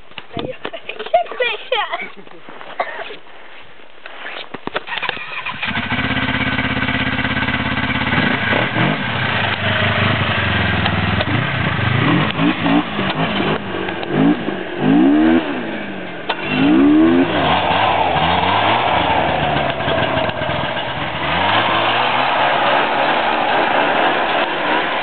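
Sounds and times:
snowmobile engine revving: 5.2 - 25.0.

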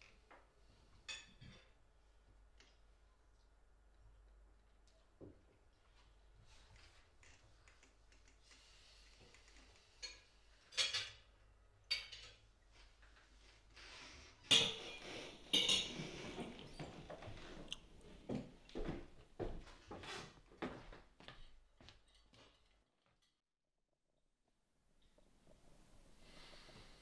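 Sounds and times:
cutlery clinking on plates: 1.0 - 1.8, 10.0 - 11.3, 11.9 - 12.5, 14.5 - 16.9.

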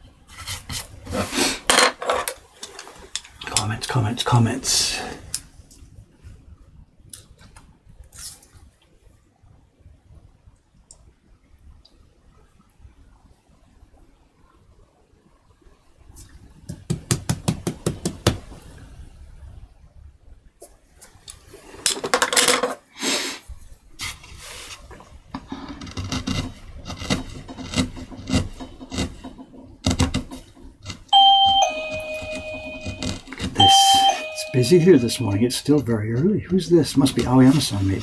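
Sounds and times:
chisel cutting wood: 25.8 - 29.2
two-tone entry chime: 31.2 - 35.5.

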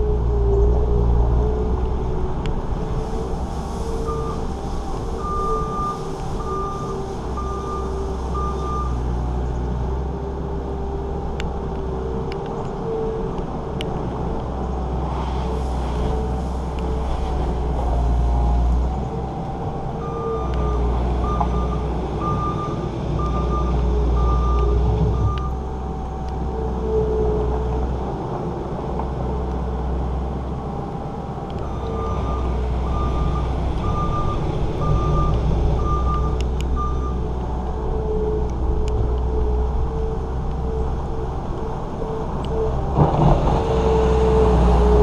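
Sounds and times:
diesel engine running: 0.0 - 45.0
backup alarm beeping: 31.7 - 37.2.

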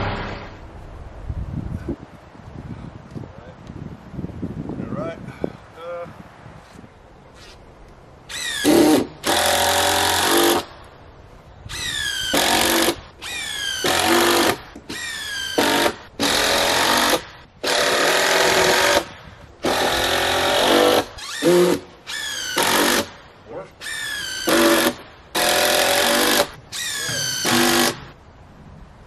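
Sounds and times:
impact driver driving fasteners: 23.8 - 28.1.

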